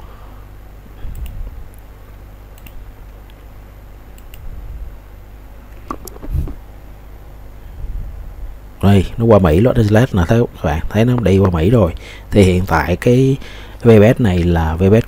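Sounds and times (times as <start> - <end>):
low steady hum: 0.0 - 15.0
mouse clicks: 2.6 - 2.8.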